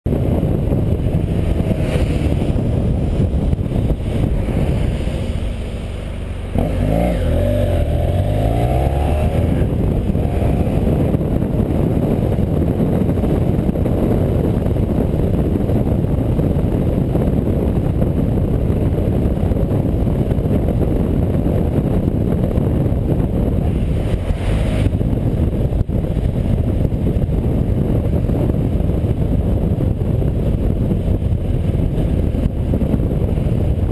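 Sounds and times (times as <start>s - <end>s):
wind rushing on microphone: 0.0s - 33.9s
motorcycle engine accelerating: 0.1s - 33.9s.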